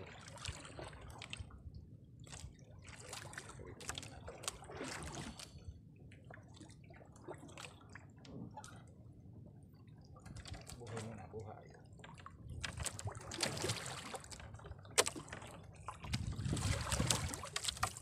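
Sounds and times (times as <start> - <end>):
small water splashes: 0.0 - 5.6, 6.2 - 8.9, 10.1 - 18.0
water dripping and trickling: 16.1 - 18.0.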